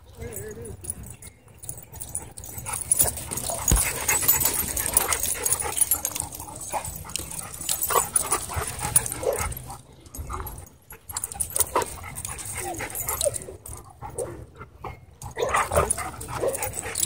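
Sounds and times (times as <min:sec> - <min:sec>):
dogs yipping and whining: 0:00.3 - 0:17.0
dogs scuffling and rustling: 0:01.6 - 0:13.4.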